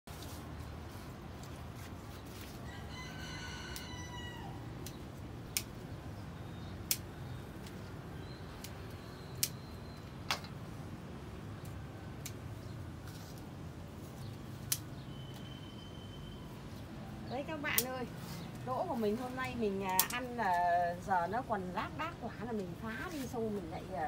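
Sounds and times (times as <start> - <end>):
rooster crowing: 2.6 - 4.7
pruning shears snipping: 19.7 - 20.4.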